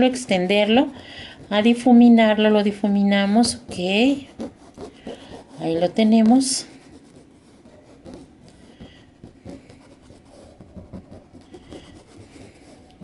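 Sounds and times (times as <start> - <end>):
paintbrush scratching on cloth: 0.0 - 13.0.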